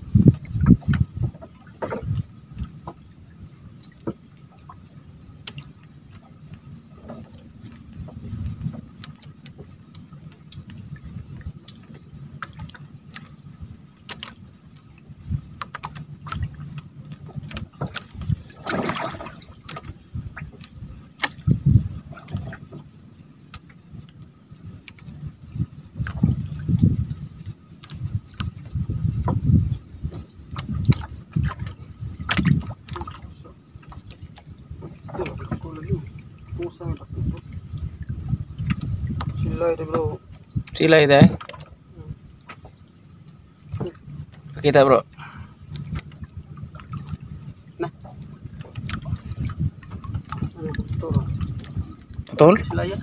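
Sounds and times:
water lapping against boat: 0.0 - 53.0
splash: 17.5 - 19.9.

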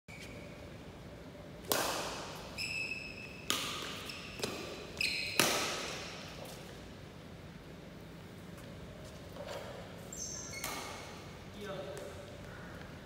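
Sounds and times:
shoe squeaks on court floor: 0.1 - 0.6, 2.5 - 5.6, 9.4 - 11.2
racket striking shuttlecock: 1.6 - 2.6, 3.2 - 6.6, 10.6 - 11.2.

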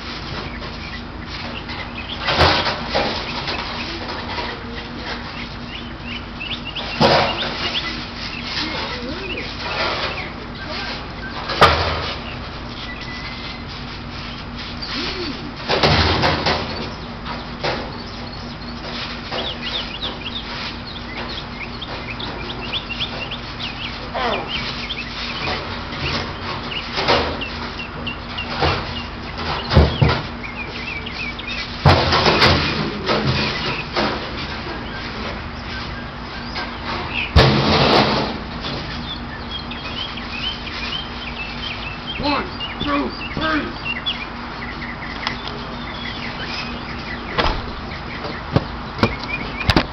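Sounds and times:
birds chirping: 0.0 - 49.9
thumps and bangs on trampoline: 2.1 - 4.6, 11.4 - 12.3, 15.6 - 18.0, 28.4 - 34.5, 36.6 - 39.0, 47.4 - 49.9.

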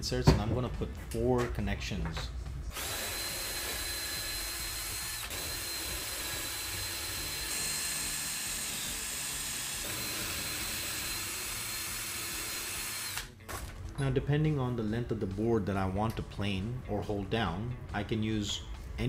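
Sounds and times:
cordless drill boring into wood: 2.7 - 13.3.

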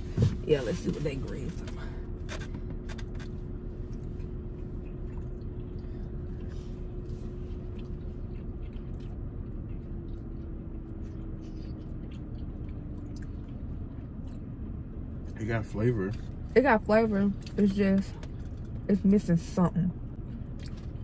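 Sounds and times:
vehicle cabin hum: 0.0 - 21.0
person chewing food: 2.2 - 15.4, 17.4 - 18.9, 20.2 - 21.0.

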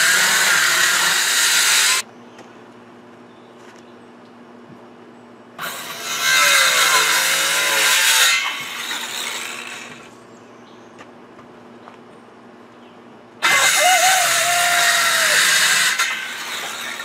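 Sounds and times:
handheld power tool running: 13.4 - 17.0.

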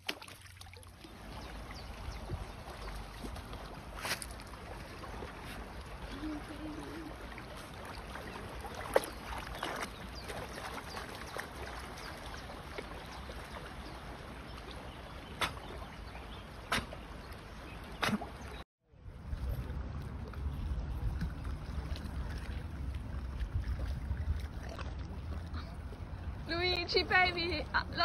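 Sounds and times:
dog paddling through water: 0.0 - 28.0
wind on microphone: 19.0 - 26.6.

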